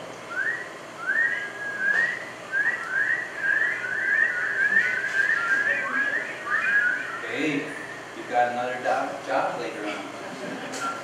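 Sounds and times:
people whistling rising notes: 0:00.3 - 0:08.1, 0:10.8 - 0:11.0.

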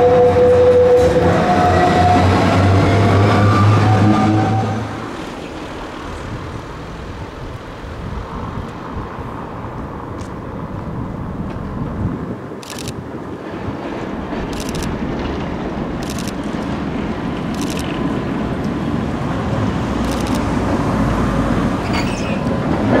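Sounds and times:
electric tram whining: 0:00.0 - 0:23.0
street traffic noise: 0:00.0 - 0:23.0.

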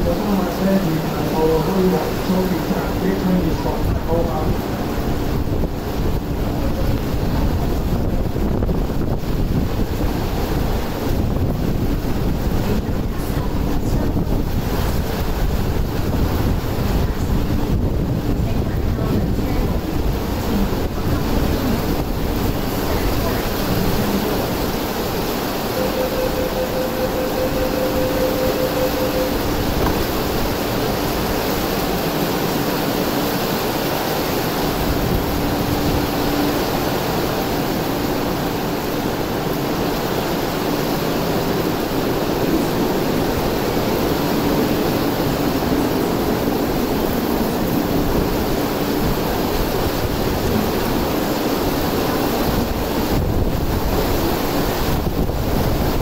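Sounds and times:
heavy rain on roof: 0:00.0 - 0:56.0
train door beeps: 0:25.6 - 0:30.9.

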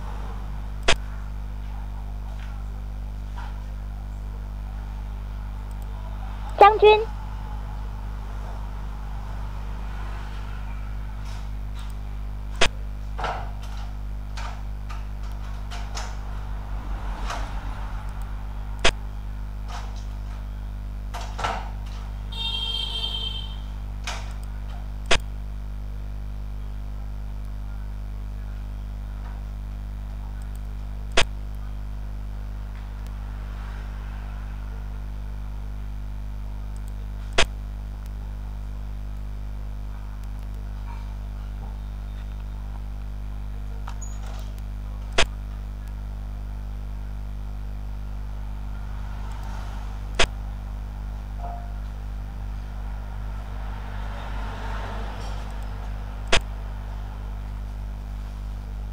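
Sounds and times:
low electrical hum: 0:00.0 - 0:58.9.

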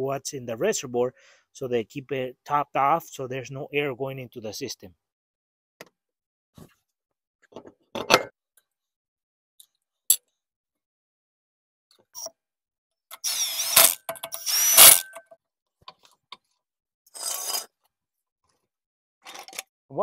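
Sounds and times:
ratcheting tool: 0:13.1 - 0:15.3.

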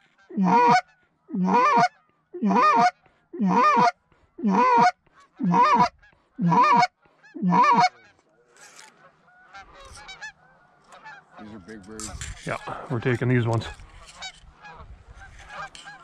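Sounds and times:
goose call honks: 0:00.2 - 0:08.2.

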